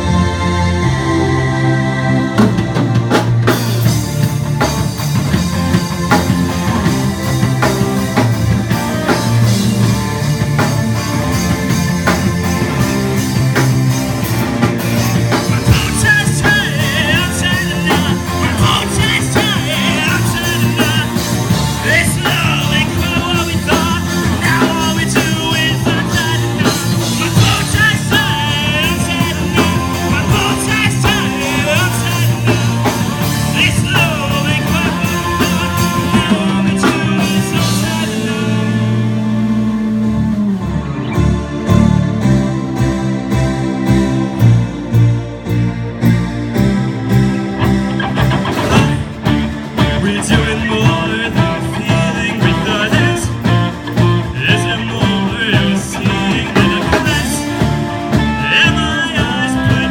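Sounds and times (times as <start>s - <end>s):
bass guitar: 0.0s - 59.9s
drum kit: 0.0s - 59.9s
electric lead guitar: 0.0s - 59.9s
keyboards: 0.0s - 59.9s
person singing: 15.3s - 41.2s, 48.0s - 59.9s.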